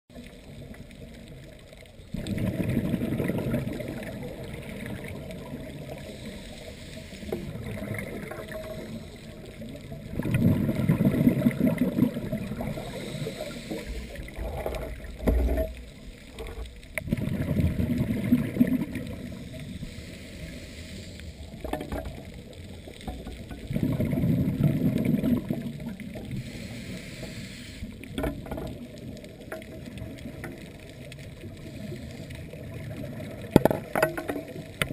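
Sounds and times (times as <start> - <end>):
exhaled bubbles underwater: 0.1 - 20.5, 21.4 - 27.0, 27.9 - 34.9.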